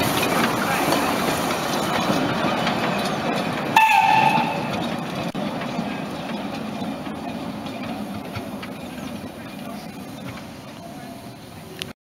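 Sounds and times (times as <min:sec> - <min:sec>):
train wagons rumbling on track: 0:00.0 - 0:11.9
steam whistle blast: 0:03.8 - 0:04.7.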